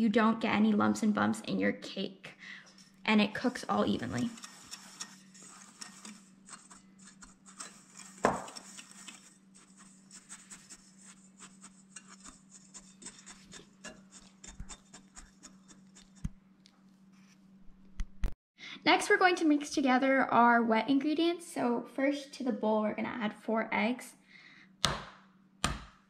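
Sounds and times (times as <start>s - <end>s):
whisk scratching in glass bowl: 2.8s - 16.3s.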